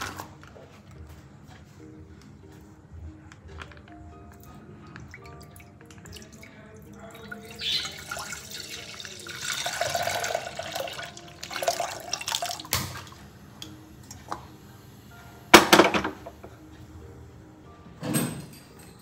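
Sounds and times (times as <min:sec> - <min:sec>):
milk pouring into saucepan: 0:05.0 - 0:13.2.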